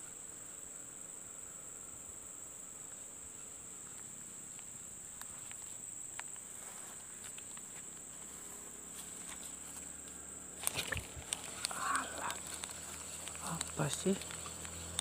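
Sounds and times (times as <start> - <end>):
insects trilling: 0.0 - 15.0
faint clicks: 10.0 - 15.0.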